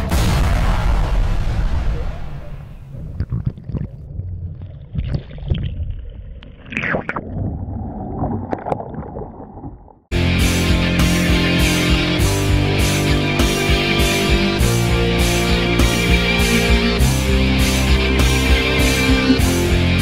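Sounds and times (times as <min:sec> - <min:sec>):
underwater gurgling and rushing: 0:01.7 - 0:10.1
rock music with electric guitar: 0:10.1 - 0:20.0.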